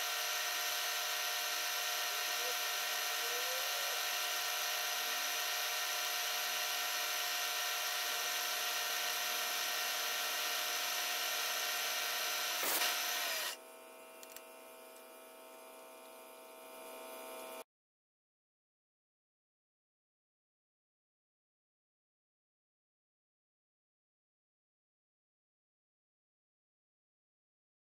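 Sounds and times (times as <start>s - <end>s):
milling machine spindle whine: 0.0s - 13.6s
short sharp scrape: 12.6s - 13.0s
end mill cutting metal hiss: 12.6s - 13.1s.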